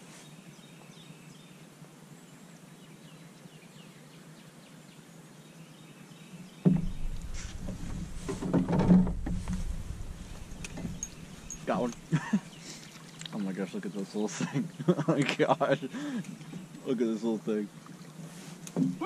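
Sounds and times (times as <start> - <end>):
knocks and rustles: 6.6 - 12.1
low rumble: 6.7 - 12.2.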